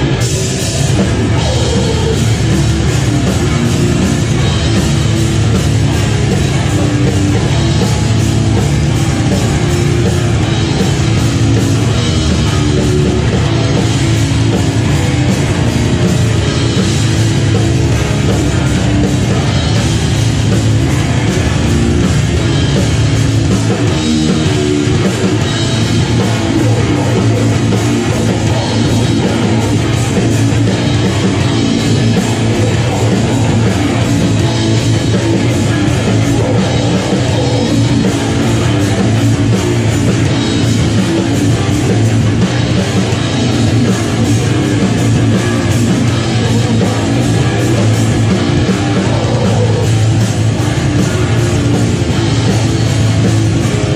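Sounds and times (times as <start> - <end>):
distorted electric guitar: 0.0 - 53.9
drum kit with crashing cymbals: 0.0 - 53.9.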